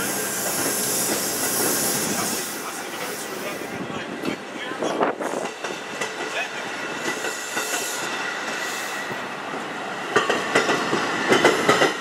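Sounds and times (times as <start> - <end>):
train wheels on rails: 0.0 - 12.0
wheels clacking over rail joints: 5.3 - 8.7, 9.5 - 12.0.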